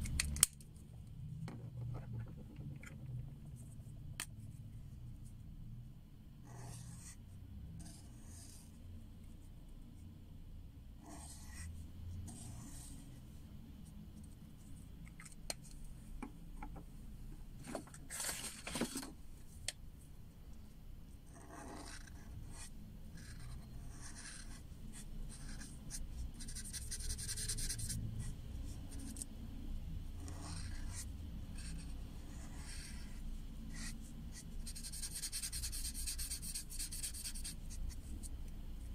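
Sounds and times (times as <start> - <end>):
markers scratching on paper: 21.3 - 29.3, 30.2 - 38.2.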